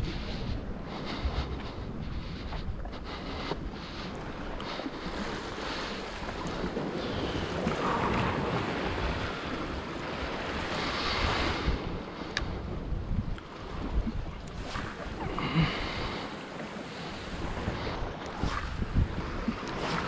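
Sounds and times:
wind buffeting microphone: 0.0s - 20.0s
waves washing against rocks: 4.3s - 12.3s.

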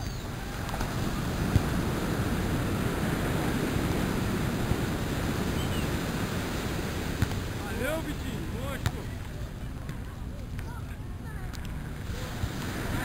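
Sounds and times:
wind buffeting microphone: 0.0s - 10.3s
surf breaking on beach: 0.3s - 9.2s, 12.0s - 13.0s.

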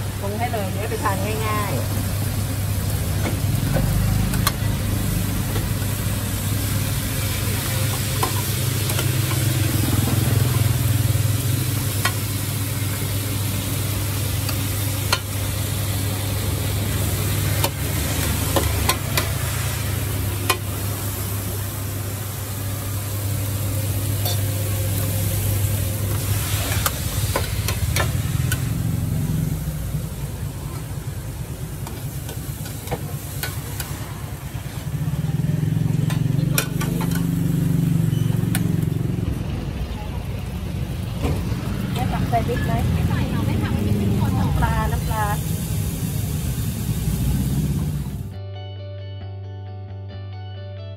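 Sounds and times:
food sizzling in a pan: 0.0s - 48.3s.

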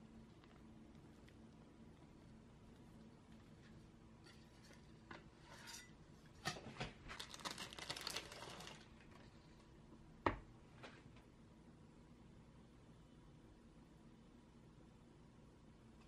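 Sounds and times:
metal knife scraping metal pan: 5.4s - 6.0s.

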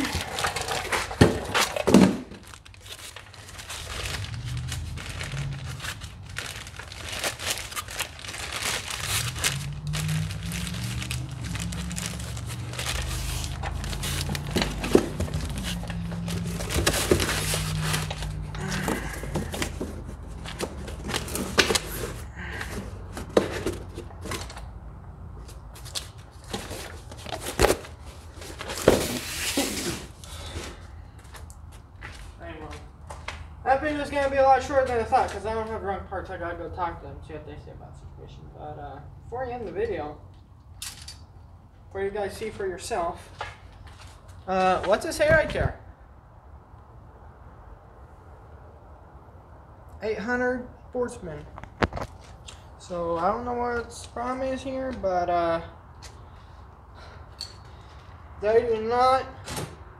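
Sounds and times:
plastic bag crinkling: 0.0s - 19.8s.

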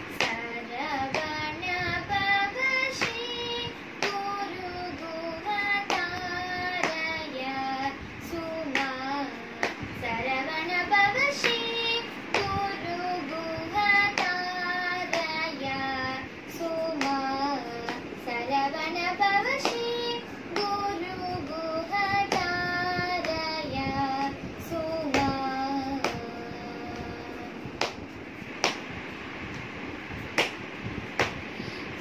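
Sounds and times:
girl singing unaccompanied: 0.0s - 29.6s
hand claps: 0.1s - 15.8s, 16.6s - 27.1s, 27.8s - 31.6s.

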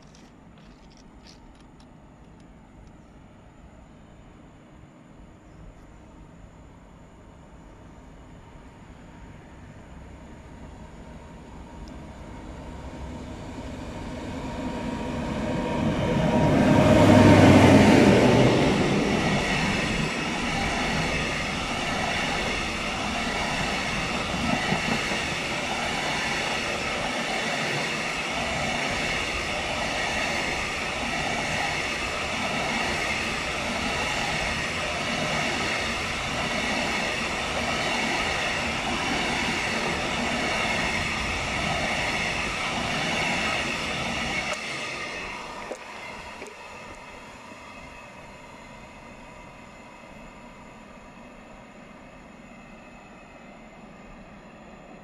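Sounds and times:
freight train passing: 0.0s - 55.0s
wheels rattling on rails: 14.9s - 47.2s.

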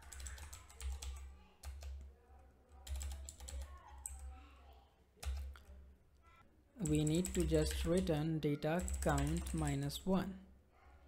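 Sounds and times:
keyboard typing: 0.0s - 2.1s, 2.7s - 4.3s, 5.2s - 5.8s, 6.8s - 8.1s, 8.8s - 10.0s.

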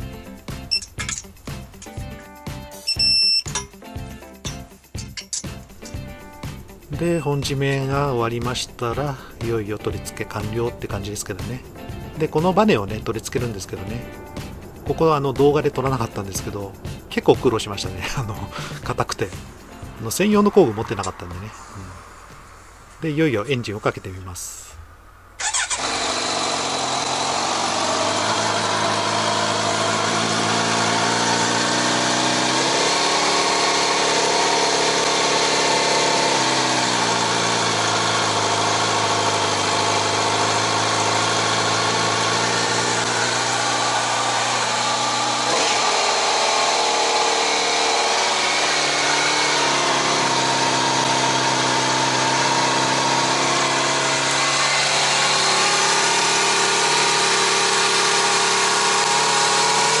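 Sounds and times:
motorcycle engine starting and idling: 25.4s - 60.0s.

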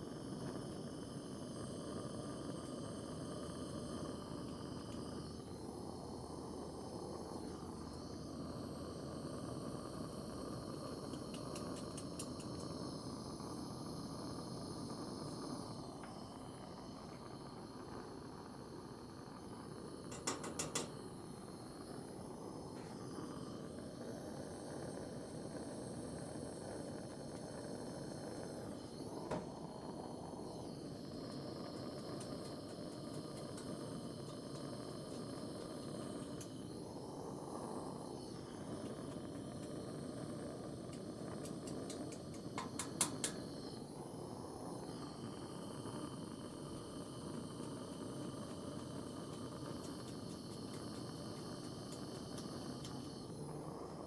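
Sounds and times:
torch flame hissing: 0.0s - 54.0s
sharp clicks: 20.1s - 21.0s, 40.9s - 43.5s.

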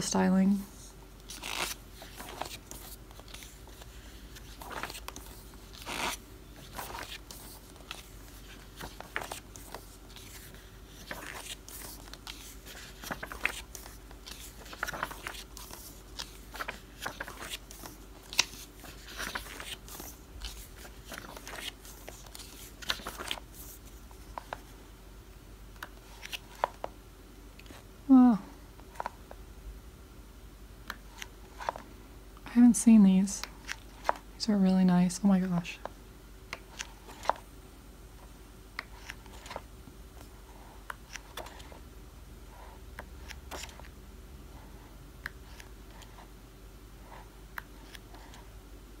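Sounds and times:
book pages turning: 1.2s - 24.7s, 25.8s - 27.0s, 28.8s - 29.3s, 30.9s - 31.9s, 33.4s - 34.2s, 36.5s - 37.4s, 38.8s - 41.8s, 43.0s - 43.9s, 47.6s - 48.5s.

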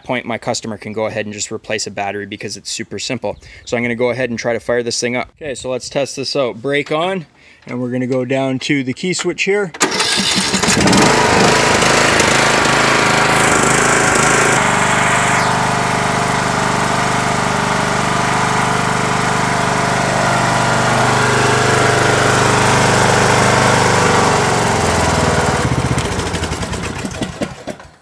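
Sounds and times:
riding mower engine running: 9.8s - 28.0s.

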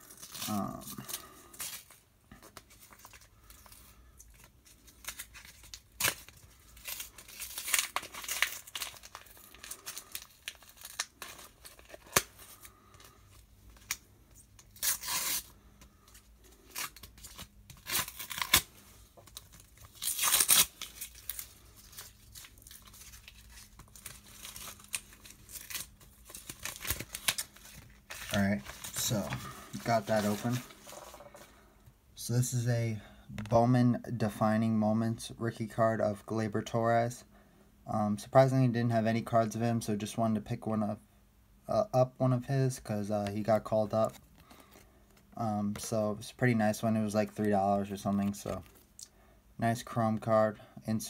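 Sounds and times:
packaging tearing and crinkling: 0.0s - 14.0s, 14.6s - 15.5s, 16.6s - 31.2s.

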